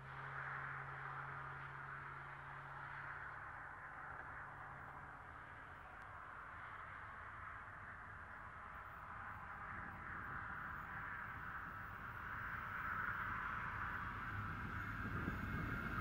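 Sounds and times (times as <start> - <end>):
distant train hum: 3.3 - 16.0.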